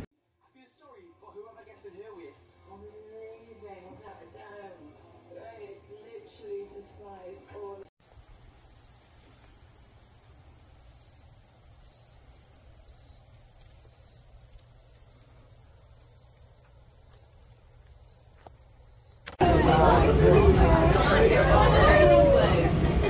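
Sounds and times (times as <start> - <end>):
insects trilling: 8.0 - 19.4.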